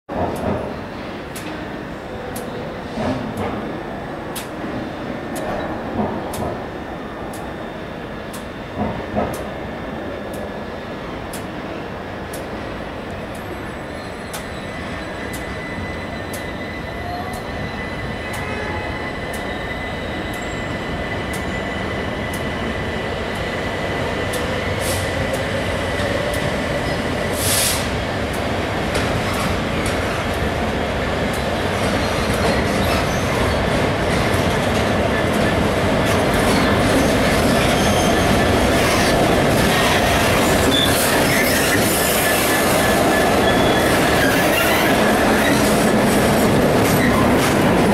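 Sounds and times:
brief hiss: 0:27.4 - 0:27.9
wheels squealing: 0:36.3 - 0:47.9.

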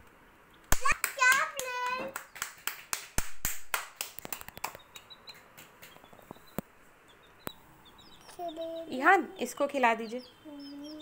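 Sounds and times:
child clapping hands: 0:00.7 - 0:06.0
baby chicks peeping: 0:04.2 - 0:11.0.

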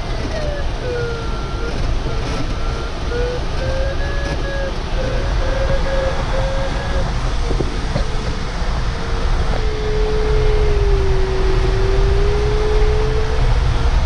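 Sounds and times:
variometer pulsing beep: 0:00.0 - 0:07.1
airflow rushing in cockpit: 0:00.0 - 0:14.0.

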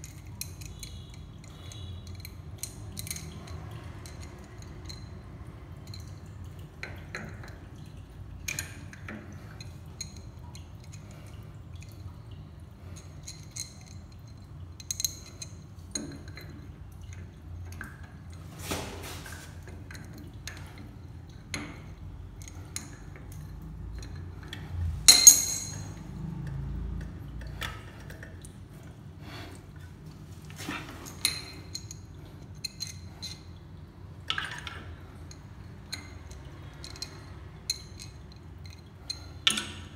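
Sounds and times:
hand tool clinking on metal: 0:25.0 - 0:26.0.

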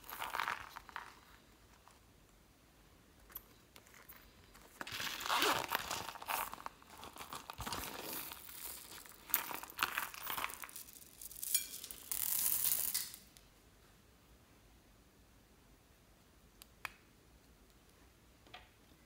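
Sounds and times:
vinyl purse crinkling: 0:00.0 - 0:01.9, 0:03.7 - 0:13.2
plastic beads rattling: 0:03.9 - 0:13.4
zipper pulled open: 0:04.8 - 0:09.0.

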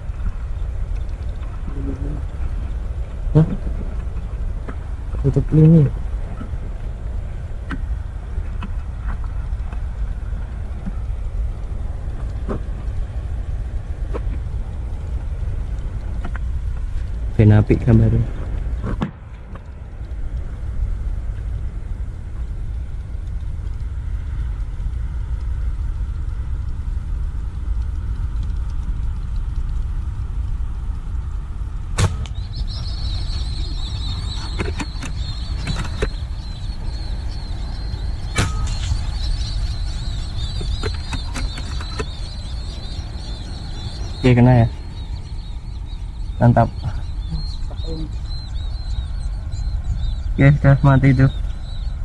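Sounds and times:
low rumble: 0:00.0 - 0:52.0
high-pitched whine: 0:20.8 - 0:52.0
air rifle shots: 0:32.0 - 0:32.4.

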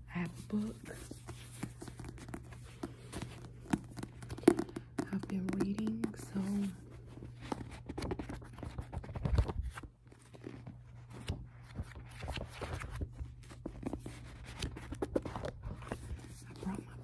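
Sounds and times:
book pages rustling: 0:00.1 - 0:17.0
fingers tapping on paper: 0:02.0 - 0:06.8.

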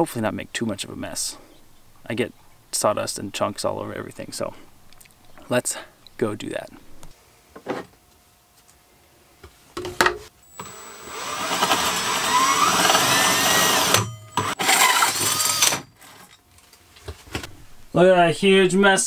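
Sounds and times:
drill with hole saw cutting wood: 0:10.4 - 0:15.9
drill clicks: 0:10.5 - 0:15.8.

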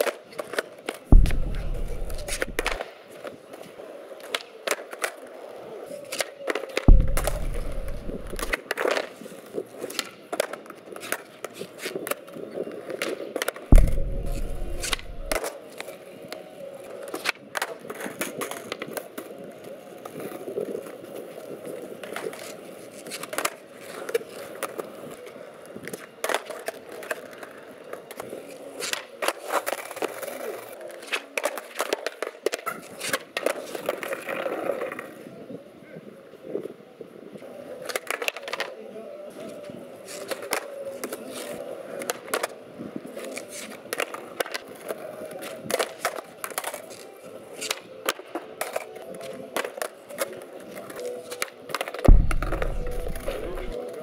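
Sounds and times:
skateboard clacks: 0:00.0 - 0:35.3, 0:37.4 - 0:54.0
skateboard wheels rolling on concrete: 0:00.0 - 0:54.0
loud board impacts: 0:01.1 - 0:02.8, 0:06.9 - 0:08.5, 0:13.7 - 0:15.4, 0:52.1 - 0:53.8.

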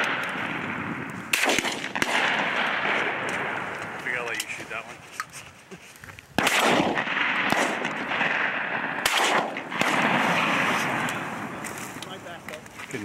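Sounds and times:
shotgun shots with rolling echo: 0:00.0 - 0:04.4, 0:06.4 - 0:11.6.

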